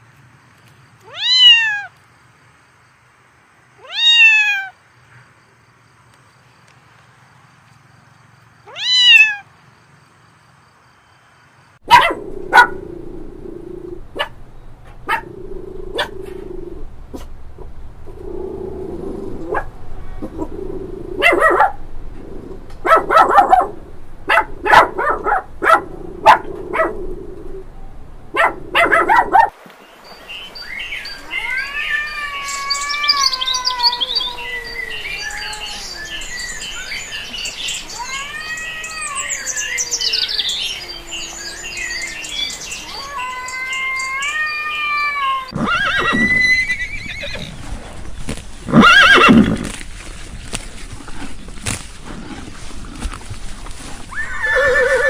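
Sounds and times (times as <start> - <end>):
high rising and falling calls: 30.6 - 47.6, 54.1 - 55.0.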